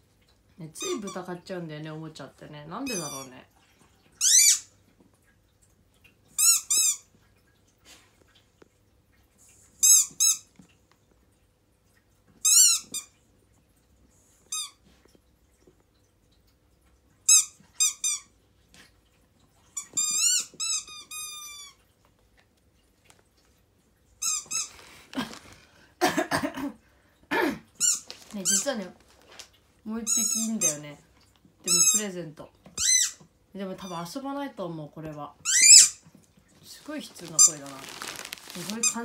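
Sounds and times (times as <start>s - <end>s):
squeaky toy squealing: 4.2s - 4.7s, 32.8s - 33.2s, 35.5s - 36.0s.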